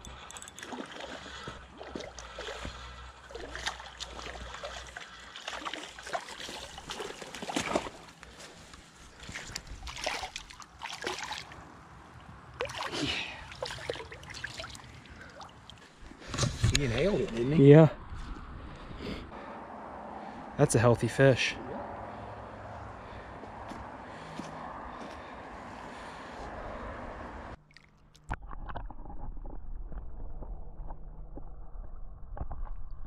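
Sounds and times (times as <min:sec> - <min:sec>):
fish splashing at water surface: 0:00.5 - 0:08.1, 0:09.8 - 0:11.6, 0:12.6 - 0:15.9.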